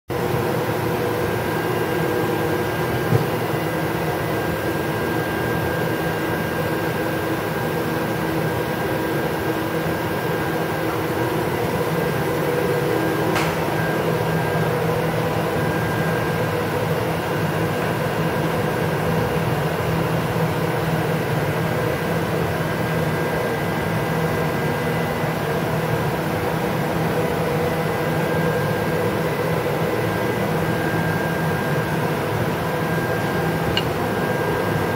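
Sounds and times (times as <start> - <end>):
machine humming with fans: 0.1 - 34.9.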